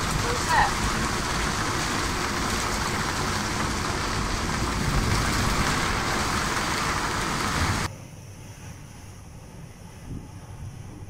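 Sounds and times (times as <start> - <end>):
water rushing past boat: 0.0 - 7.9
wind rushing: 0.0 - 7.9.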